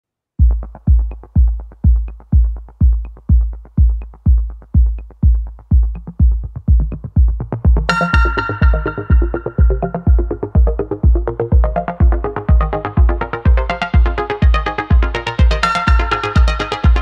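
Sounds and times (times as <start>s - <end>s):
electronic dance music: 0.4s - 17.0s
heavy kick drum: 0.4s - 17.0s
bright synth chord: 7.9s - 10.8s.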